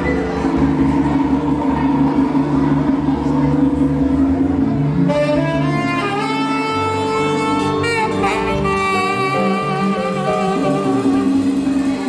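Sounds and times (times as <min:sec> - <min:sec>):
latin jazz band bass and percussion: 0:00.0 - 0:12.0
tenor saxophone melody: 0:04.6 - 0:12.0.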